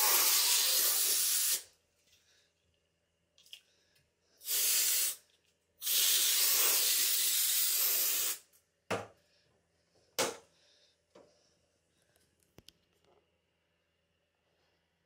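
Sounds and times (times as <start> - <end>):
aerosol spray can hissing: 0.0 - 1.7, 4.4 - 5.2, 5.8 - 8.4.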